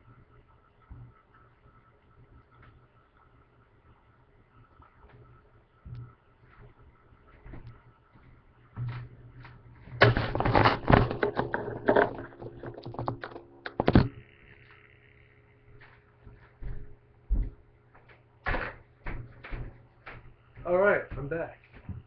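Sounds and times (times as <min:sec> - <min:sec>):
thumps: 0:09.9 - 0:14.2
clattering and knocking: 0:10.0 - 0:14.1.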